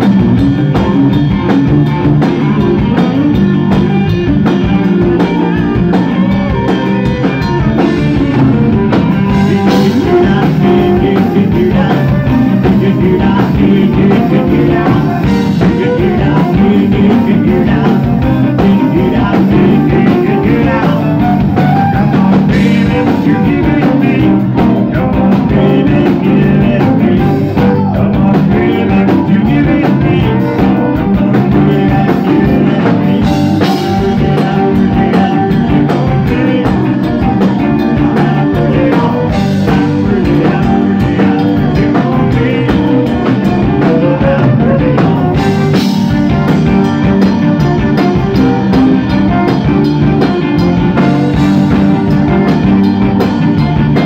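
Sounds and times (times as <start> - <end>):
cajun band playing: 0.0 - 54.0
man singing: 7.7 - 46.9.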